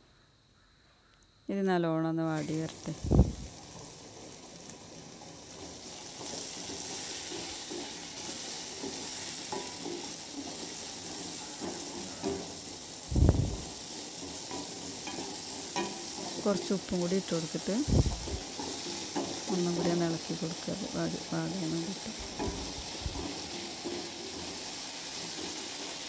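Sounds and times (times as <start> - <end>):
onions sizzling in oil: 2.0 - 26.0
spatula scraping pan: 3.6 - 26.0.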